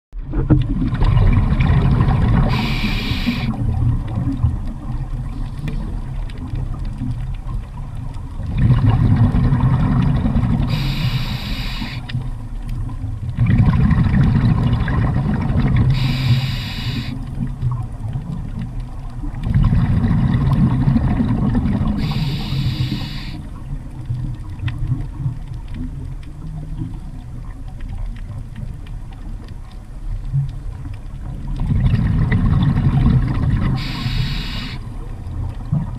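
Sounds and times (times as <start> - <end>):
rumble of exhaled bubbles: 0.2 - 35.9
diver regulator hiss: 2.4 - 3.6, 10.6 - 12.2, 15.9 - 17.2, 22.0 - 23.5, 33.8 - 35.0.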